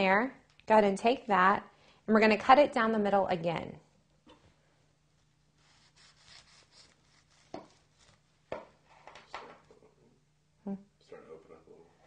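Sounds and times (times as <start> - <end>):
knife scraping through sushi: 5.6 - 8.2.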